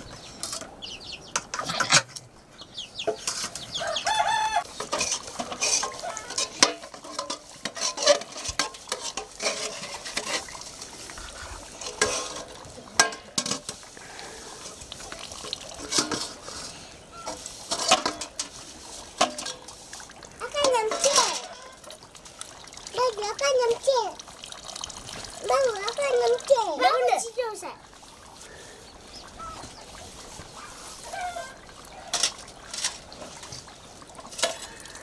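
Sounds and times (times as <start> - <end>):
metal pots and pans clinking: 0.3 - 2.2, 3.0 - 3.8, 4.7 - 10.6, 11.7 - 14.7, 15.4 - 19.8, 20.4 - 22.0, 31.2 - 33.6, 34.2 - 35.0.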